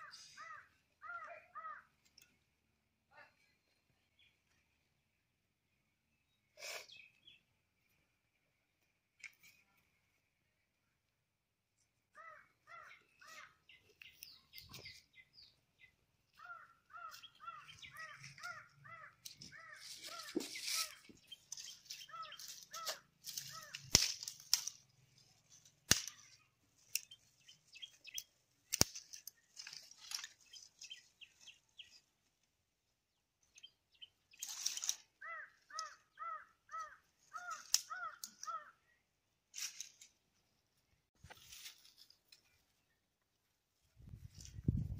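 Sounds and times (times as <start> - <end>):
crows cawing: 0.0 - 1.9, 12.1 - 13.6, 16.4 - 21.0, 22.0 - 24.1, 35.2 - 38.8
dry branches rustling: 16.3 - 32.5, 33.4 - 38.7, 39.4 - 43.0, 43.8 - 44.9
dry sticks snapping: 17.0 - 30.9, 34.4 - 36.0, 36.8 - 38.7, 39.5 - 40.1.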